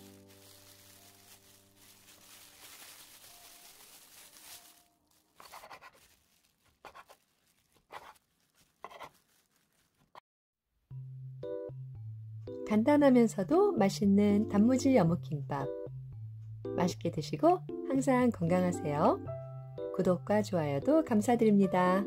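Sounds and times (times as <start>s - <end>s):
music: 0.0s - 5.4s, 10.9s - 22.0s
bamboo mat rustling: 0.0s - 10.2s.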